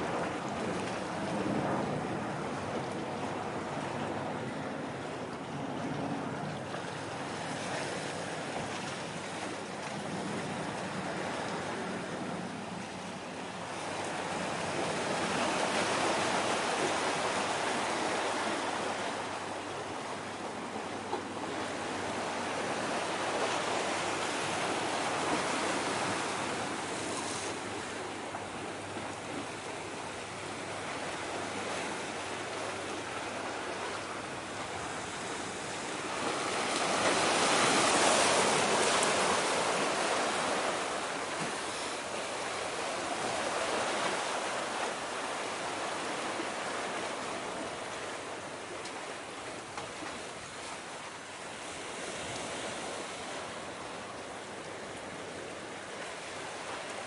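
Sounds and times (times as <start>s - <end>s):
waves washing on breakwater: 0.0s - 57.0s
wind: 0.0s - 57.0s.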